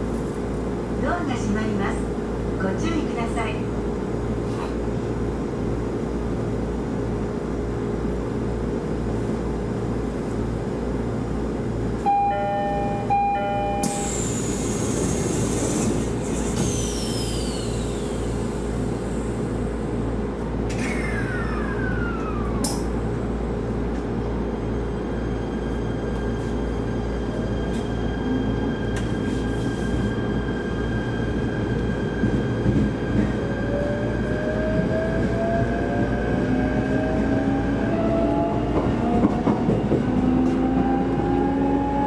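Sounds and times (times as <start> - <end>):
electric train running: 12.1 - 19.6.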